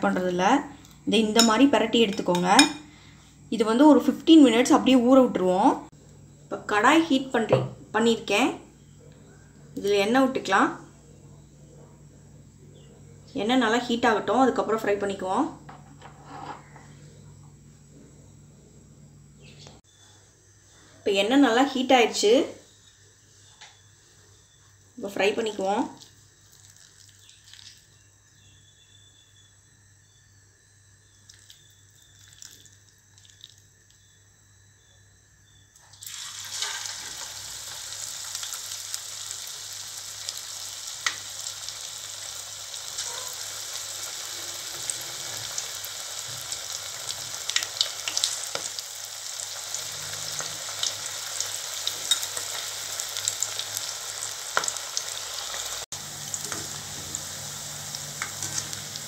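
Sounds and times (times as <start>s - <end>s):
deep-fry sizzle with crackles: 24.4s - 28.9s, 31.0s - 34.2s, 35.8s - 59.0s.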